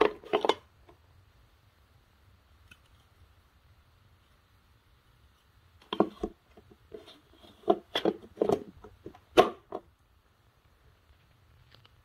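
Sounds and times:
plastic clicks and knocks: 5.8s - 6.8s.

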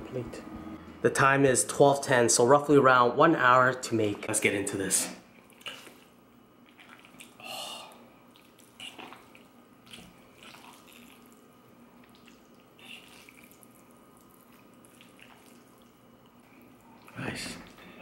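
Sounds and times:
fork squelching in pasta: 12.0s - 17.8s.

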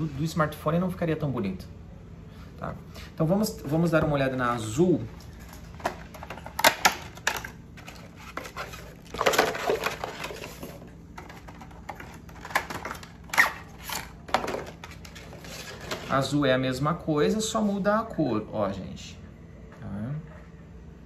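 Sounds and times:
packaging rustling: 5.0s - 16.3s.

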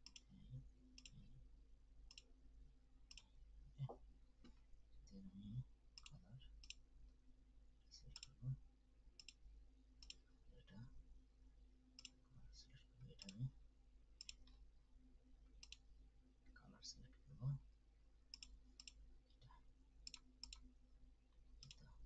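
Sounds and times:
faint computer mouse clicks: 1.0s - 1.2s, 9.2s - 9.4s, 10.0s - 10.2s, 14.2s - 14.6s, 15.6s - 15.8s, 18.3s - 19.0s, 20.1s - 20.7s, 21.6s - 21.9s.

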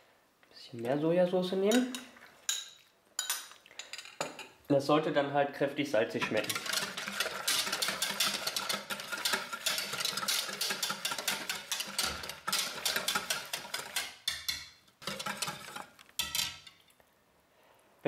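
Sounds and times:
whisk clicking against plastic bowl: 6.3s - 15.8s.

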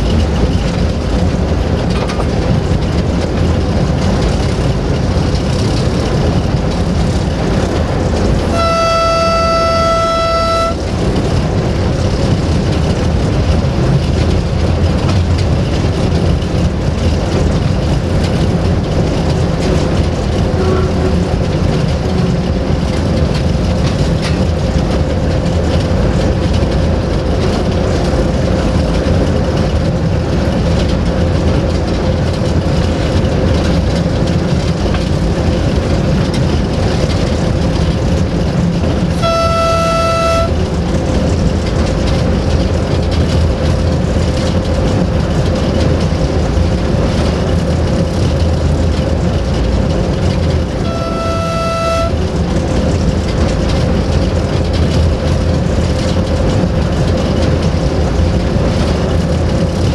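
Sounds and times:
diesel engine running: 0.0s - 59.9s
wheel and track noise: 0.0s - 59.9s
locomotive horn: 8.3s - 11.2s, 20.4s - 22.5s, 39.1s - 40.8s, 50.7s - 52.4s.

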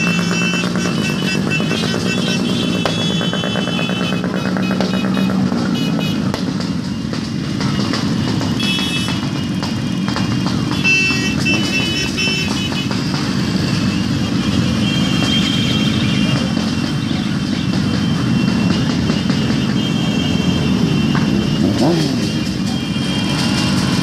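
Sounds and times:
motorcycle engines droning: 0.0s - 24.0s.

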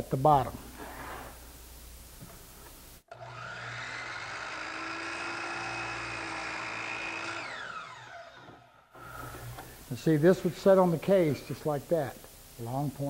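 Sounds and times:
chop saw cutting: 3.1s - 9.4s
saw motor winding down: 3.1s - 9.6s.

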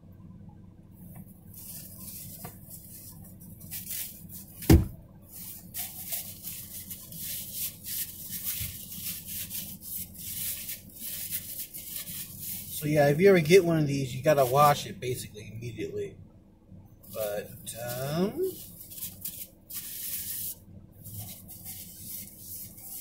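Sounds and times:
paper towel rustling: 1.2s - 14.9s, 17.1s - 23.0s
paper towel rubbing a ceramic mug: 1.4s - 4.7s, 5.3s - 14.8s, 17.1s - 23.0s
loud thump: 4.6s - 5.0s.

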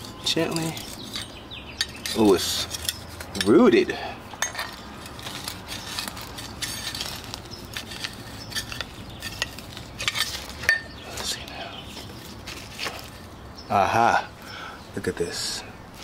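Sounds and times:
tool scraping inside ceramic pot: 0.0s - 11.0s.

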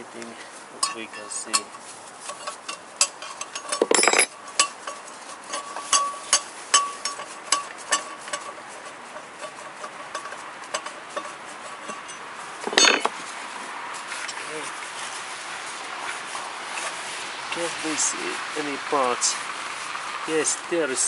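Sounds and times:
metal clatter: 0.8s - 13.3s
metal parts clinking: 2.4s - 8.5s, 9.5s - 13.2s.

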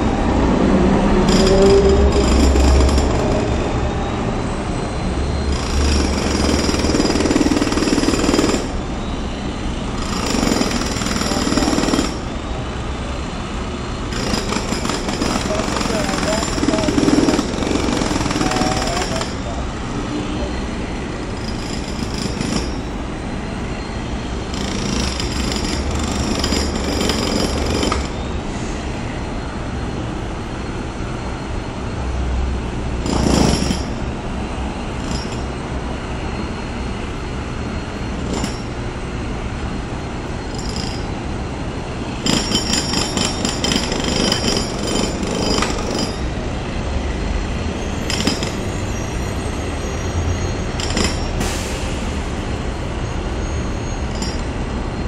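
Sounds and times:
passing street traffic hum: 0.0s - 55.0s
jackhammer hammering concrete: 1.2s - 3.4s, 5.5s - 8.7s, 10.0s - 12.3s, 14.1s - 19.4s, 21.4s - 22.8s, 24.5s - 28.1s, 33.0s - 34.0s, 38.2s - 38.7s, 40.5s - 41.1s, 42.2s - 46.3s, 48.1s - 48.7s, 50.8s - 51.7s.

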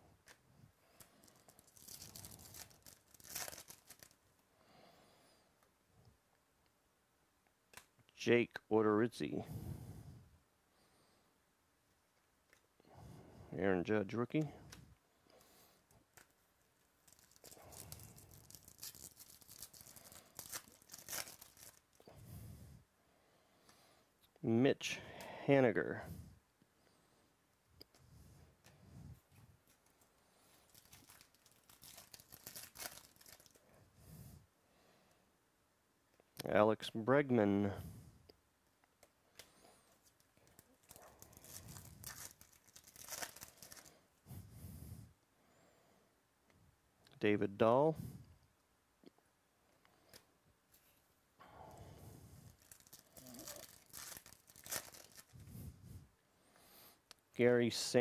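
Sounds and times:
foil wrapper tearing and crinkling: 1.0s - 4.2s, 17.0s - 22.1s, 30.5s - 33.6s, 40.0s - 44.0s, 52.4s - 55.4s.

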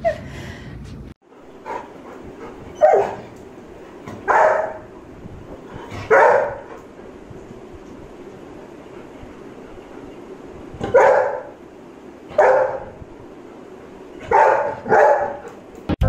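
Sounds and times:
dog barking: 2.8s - 3.2s, 4.2s - 4.9s, 6.0s - 6.7s, 10.8s - 11.5s, 12.3s - 13.0s, 14.2s - 15.6s.

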